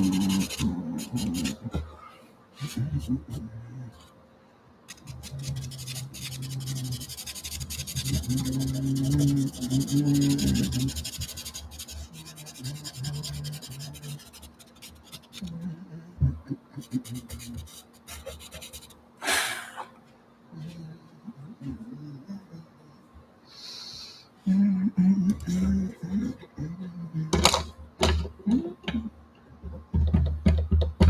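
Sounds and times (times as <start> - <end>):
pencil scratching on paper: 0.0 - 1.6, 4.9 - 15.6, 16.8 - 19.0.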